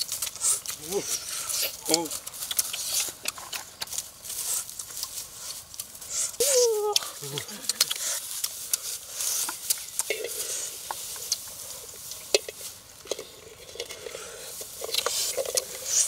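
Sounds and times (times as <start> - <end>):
dry straw rustling and crackling: 0.0 - 16.0
sharp clicks and snaps: 1.8 - 4.0, 6.9 - 8.8.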